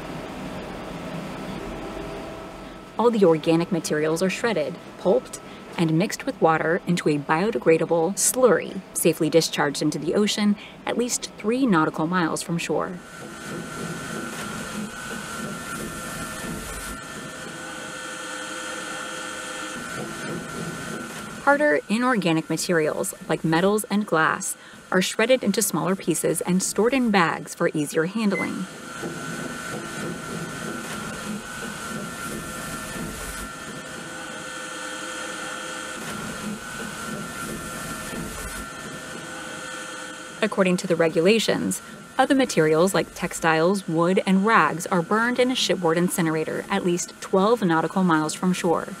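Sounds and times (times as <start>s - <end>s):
waste shredder machinery running: 13.0s - 25.0s, 28.6s - 49.0s.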